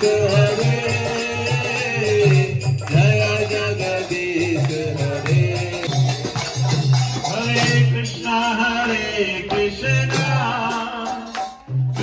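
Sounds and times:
jingling percussion: 0.0 - 12.0
hand clapping: 0.4 - 7.2.

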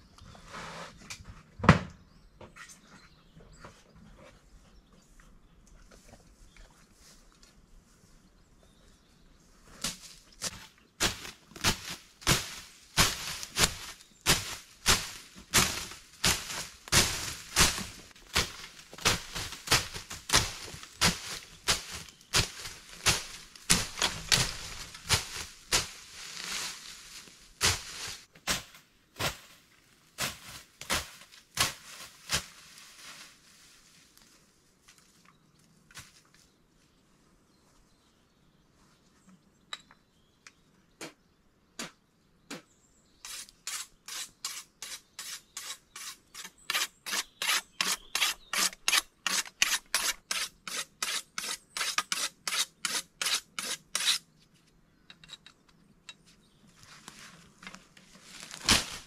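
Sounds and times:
blade slashing through brush: 11.0 - 26.8, 58.5 - 59.0.

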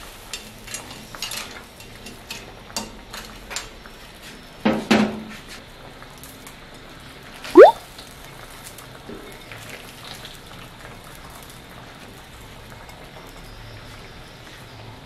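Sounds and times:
broth simmering and bubbling: 7.6 - 7.8.

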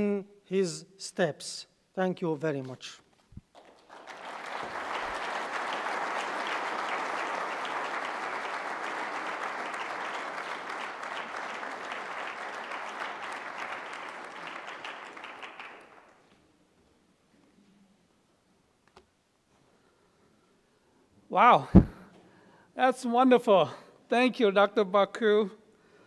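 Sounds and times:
audience applauding: 3.5 - 16.2.

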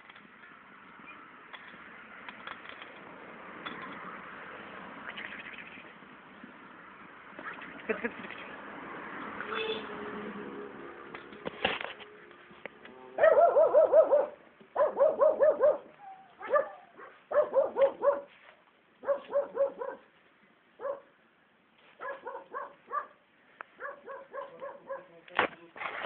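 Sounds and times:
puppy yapping: 13.2 - 18.3, 19.0 - 20.0, 22.0 - 23.1, 23.8 - 25.1.

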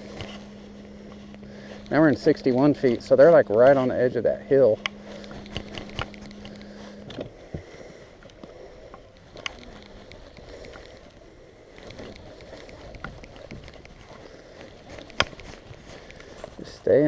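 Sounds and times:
faint steady hum: 0.0 - 17.0
fishing reel clicks and knocks: 4.6 - 7.1.

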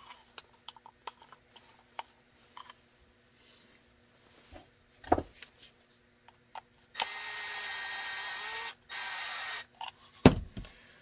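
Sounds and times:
power drill running: 7.0 - 9.7.

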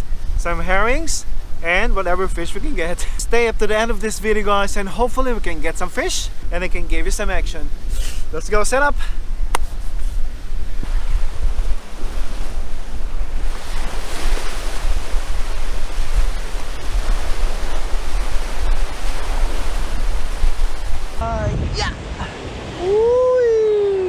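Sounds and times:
wind buffeting microphone: 0.0 - 24.0
waves breaking on rocks: 10.4 - 23.1.

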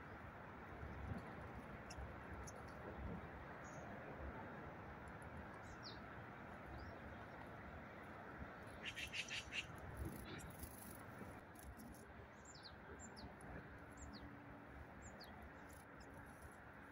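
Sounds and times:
distant road traffic hum: 0.0 - 16.9
high falling bird calls: 8.8 - 9.7
songbird chattering: 8.8 - 10.9.

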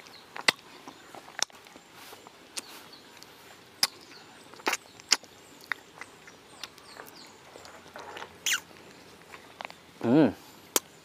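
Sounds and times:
wet mouth smacks and chewing: 0.0 - 1.8, 2.5 - 9.8
faint bird chirps: 0.0 - 11.0.

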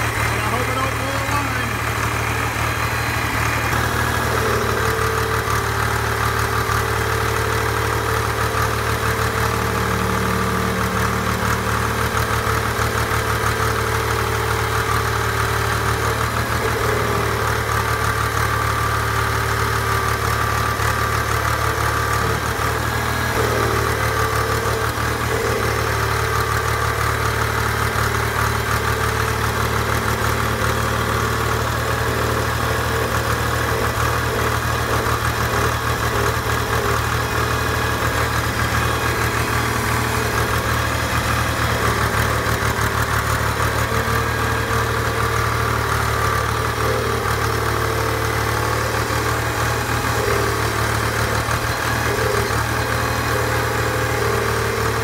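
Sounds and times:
hydraulic pump tone: 0.0 - 6.5, 20.5 - 55.0
diesel engine idling: 0.0 - 55.0.

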